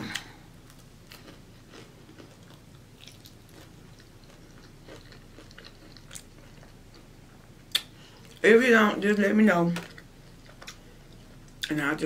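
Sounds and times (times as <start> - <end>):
person chewing food: 0.0 - 8.4.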